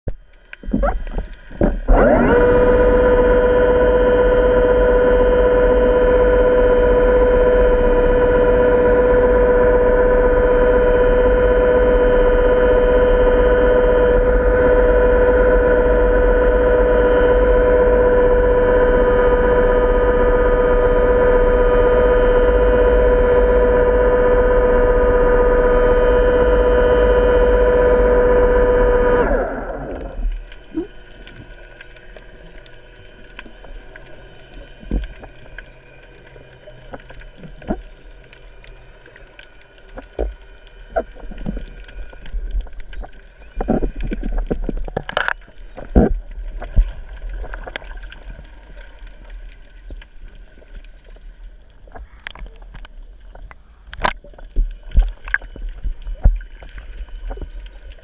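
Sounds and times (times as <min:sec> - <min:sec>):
underwater steady hum: 0:00.0 - 0:58.0
underwater clicks and knocks: 0:00.1 - 0:01.9, 0:32.7 - 0:35.7, 0:36.9 - 0:37.9, 0:39.8 - 0:48.6, 0:51.8 - 0:58.0.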